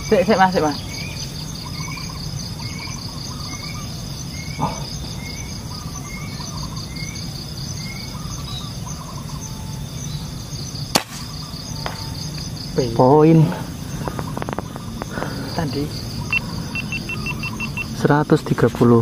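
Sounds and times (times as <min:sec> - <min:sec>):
insects buzzing: 0:00.0 - 0:19.0
sharp snap: 0:10.9 - 0:12.1.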